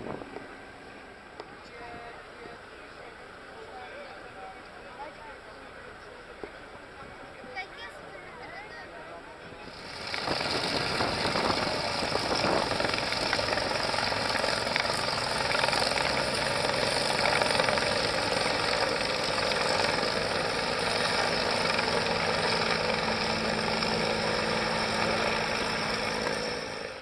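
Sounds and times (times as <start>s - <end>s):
helicopter flying overhead: 2.6s - 27.0s.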